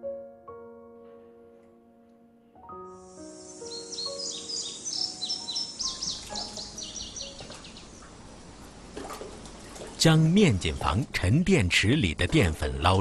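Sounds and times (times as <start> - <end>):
soft background music: 0.0 - 8.2
small birds chirping: 3.0 - 8.8.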